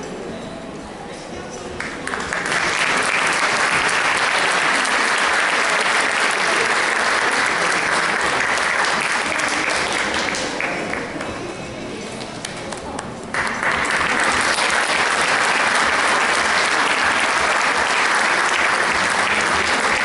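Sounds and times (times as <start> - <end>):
audience applauding: 1.8 - 11.3, 13.3 - 20.0.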